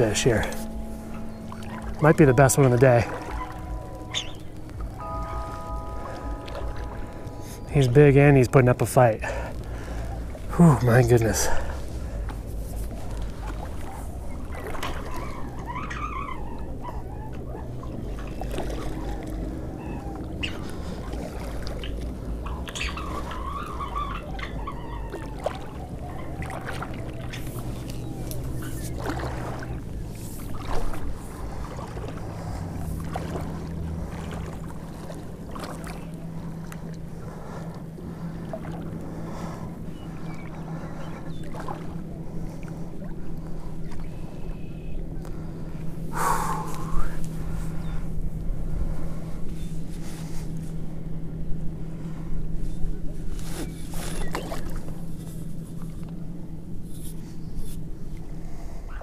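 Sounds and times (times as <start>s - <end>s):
water splashing: 0.0s - 44.2s
low motor drone: 0.0s - 59.0s
steady low hum: 0.0s - 59.0s.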